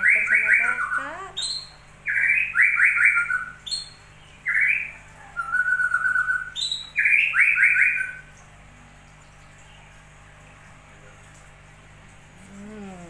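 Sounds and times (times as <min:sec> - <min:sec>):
bird singing chirps and whistle: 0:00.0 - 0:08.3.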